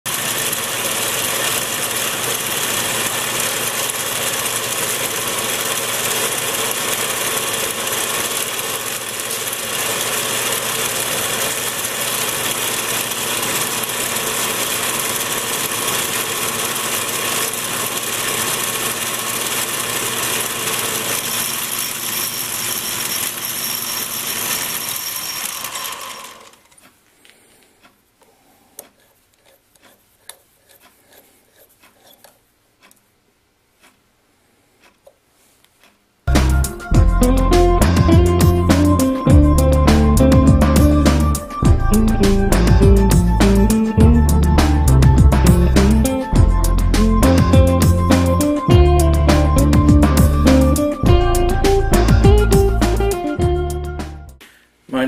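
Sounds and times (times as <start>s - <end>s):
lathe motor whirring: 0.1s - 26.8s.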